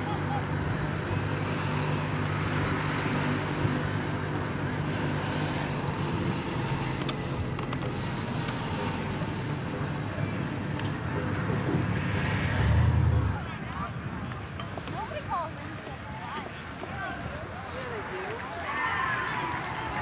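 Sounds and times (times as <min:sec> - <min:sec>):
car engine and road noise: 0:00.0 - 0:15.1
faint clicks: 0:06.9 - 0:08.6.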